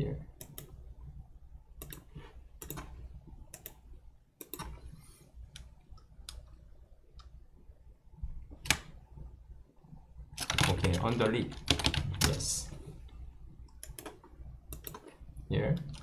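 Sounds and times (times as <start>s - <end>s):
faint low hum: 0.0s - 16.0s
computer mouse and keyboard clicks: 0.4s - 0.8s, 1.8s - 3.8s, 4.4s - 6.6s, 13.7s - 15.2s.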